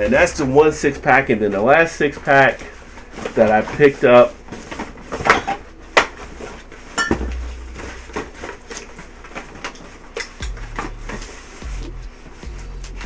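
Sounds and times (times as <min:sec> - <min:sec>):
glass bottles clinking: 0:05.2 - 0:05.6, 0:07.0 - 0:07.4.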